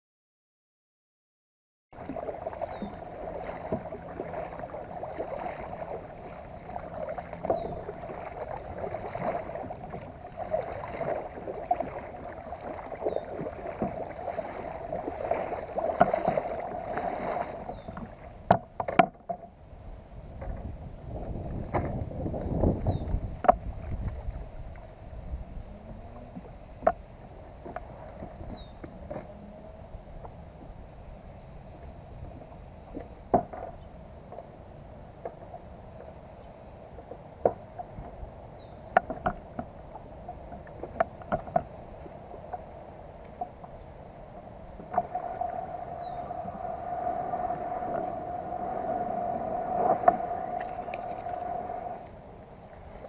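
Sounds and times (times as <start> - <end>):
kayak scraping through reeds: 2.0 - 18.5, 44.6 - 53.0
kayak paddle strokes in water: 2.0 - 53.0
falling bird chirp: 45.7 - 46.3.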